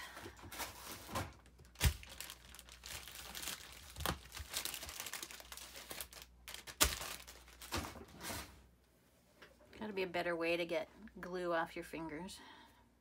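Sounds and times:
wipe packet crinkling: 0.5 - 7.9.

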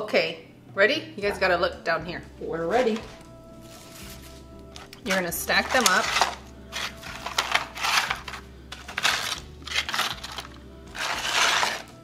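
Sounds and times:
fried tostadas clattering: 2.7 - 12.0.

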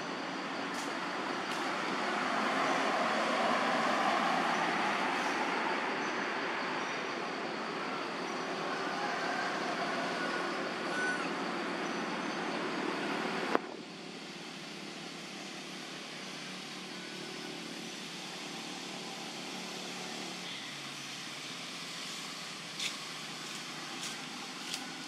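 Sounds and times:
outdoor background hiss: 10.4 - 25.0.

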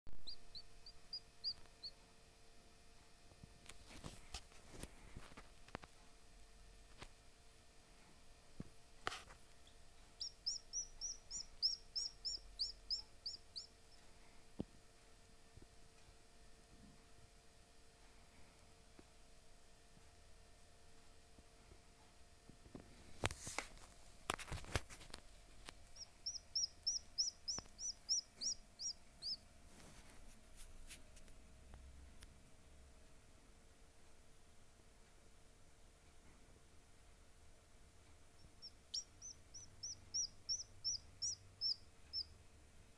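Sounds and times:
chick peeping: 0.2 - 2.0, 9.6 - 14.2, 25.6 - 29.4, 38.3 - 42.4.

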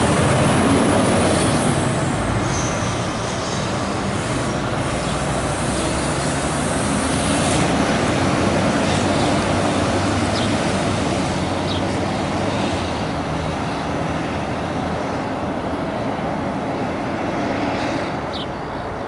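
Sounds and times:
fire engine diesel engine: 0.0 - 19.0
road noise: 0.0 - 19.0.

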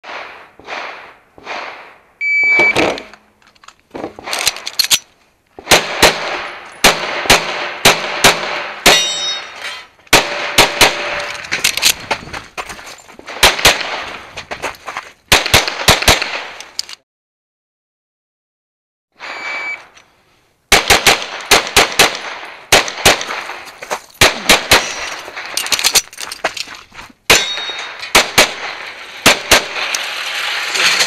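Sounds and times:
pistol shots: 0.0 - 2.0, 5.6 - 9.5, 10.1 - 11.4, 13.3 - 14.2, 15.3 - 16.6, 20.7 - 25.6, 27.3 - 29.9
shot timer beep: 2.2 - 2.8, 19.2 - 19.9.

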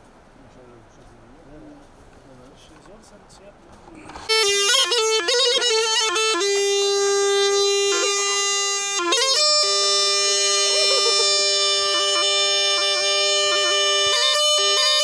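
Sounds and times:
bagpipe melody with drone: 4.2 - 15.0.

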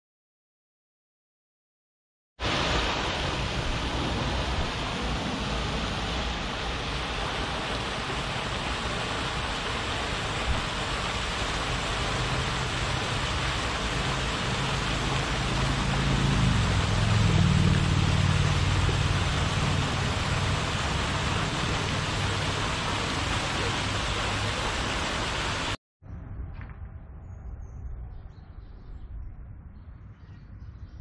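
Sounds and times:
fountain jets splashing water: 2.4 - 25.8
low rumble: 11.9 - 24.0.

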